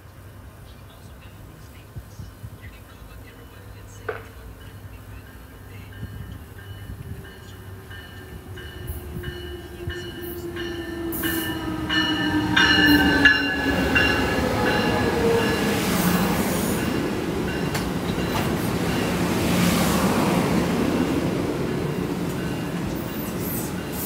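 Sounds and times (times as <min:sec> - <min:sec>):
train wheels rumbling on rail: 0:00.0 - 0:24.0
locomotive engine: 0:03.1 - 0:24.0
high ringing: 0:04.5 - 0:19.4.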